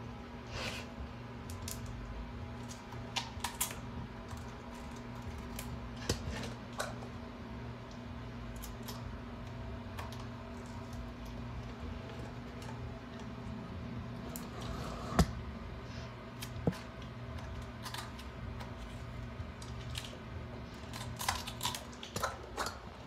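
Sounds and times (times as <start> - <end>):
dog crunching celery: 19.6 - 22.8.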